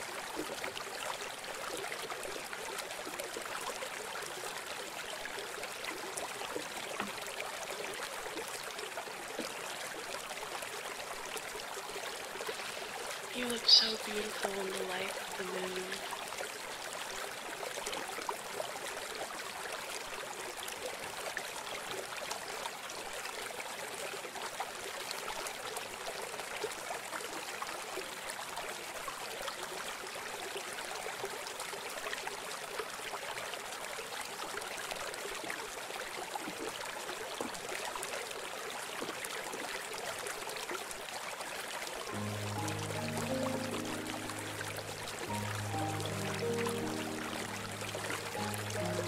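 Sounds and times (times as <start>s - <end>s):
trickling water: 0.0s - 49.0s.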